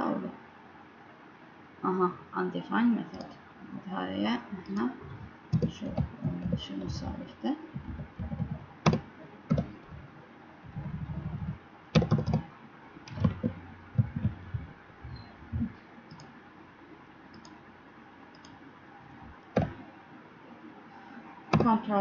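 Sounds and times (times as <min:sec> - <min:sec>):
computer keyboard typing: 0:05.5 - 0:06.9, 0:07.8 - 0:10.1, 0:10.7 - 0:12.5, 0:13.1 - 0:14.7, 0:15.5 - 0:16.3, 0:17.3 - 0:17.6, 0:19.4 - 0:19.8, 0:21.5 - 0:21.8.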